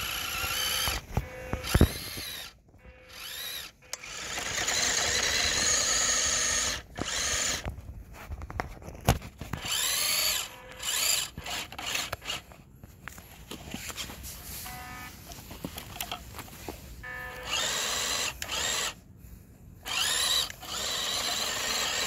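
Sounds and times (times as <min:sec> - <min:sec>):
toy truck motor whining: 0:00.0 - 0:07.7, 0:09.5 - 0:12.6, 0:17.0 - 0:19.0, 0:19.8 - 0:22.0.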